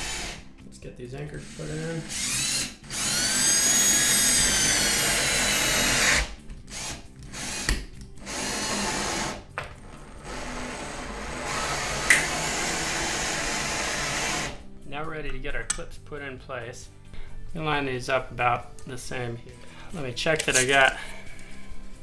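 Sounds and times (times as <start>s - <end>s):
cordless drill whining: 1.5s - 9.4s, 10.2s - 14.6s.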